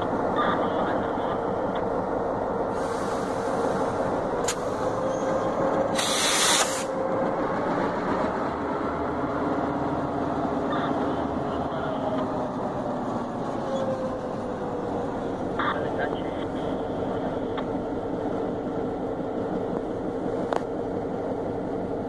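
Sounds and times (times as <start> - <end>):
locomotive engines idling: 0.0 - 22.0
compressed air hissing: 2.8 - 3.9, 5.9 - 6.9.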